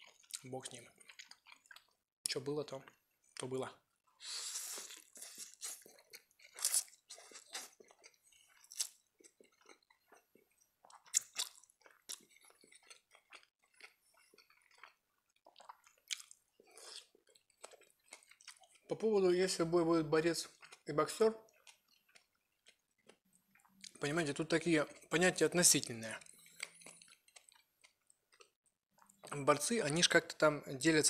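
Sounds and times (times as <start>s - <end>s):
slurping spaghetti: 4.1s - 18.8s
crunching carrot: 4.5s - 19.0s
wet chewing smacks: 4.7s - 18.9s, 25.8s - 29.4s.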